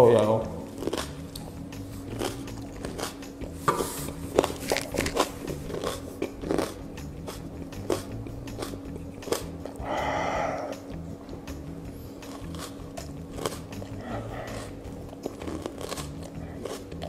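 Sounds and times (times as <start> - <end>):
person chewing raw onion: 0.6 - 17.0
breath out through mouth: 9.7 - 10.9, 13.9 - 14.8.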